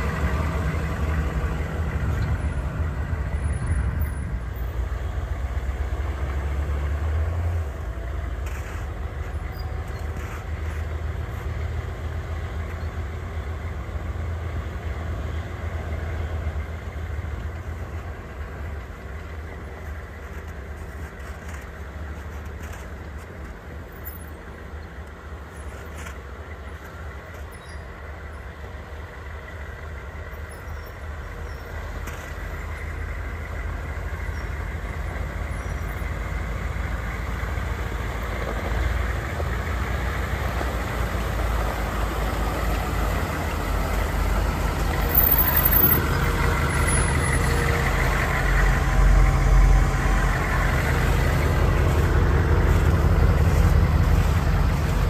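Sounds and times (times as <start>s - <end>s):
diesel engines approaching: 0.0s - 55.0s.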